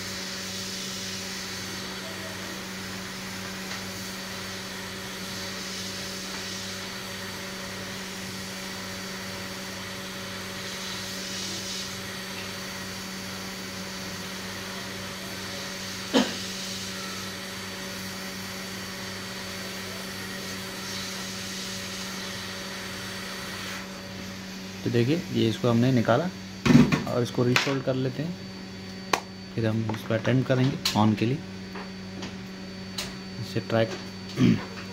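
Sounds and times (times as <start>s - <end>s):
hot air blower humming: 0.0s - 34.9s.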